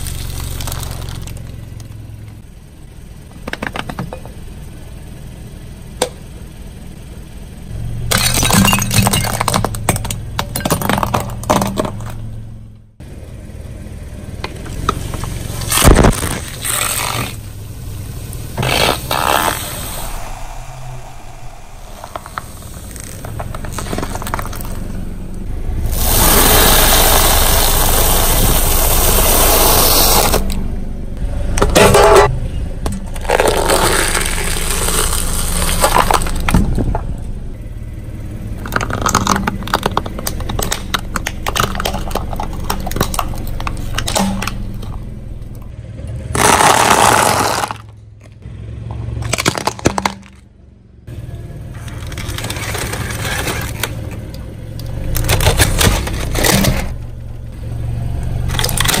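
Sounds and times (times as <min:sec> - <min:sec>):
car tyre crushing objects: 0:00.0 - 0:02.4, 0:03.1 - 0:04.6, 0:07.8 - 0:12.9, 0:14.3 - 0:30.7, 0:31.4 - 0:51.0, 0:51.6 - 0:59.0
steady rushing noise: 0:18.5 - 0:30.1
sharp hit: 0:18.6 - 0:24.8.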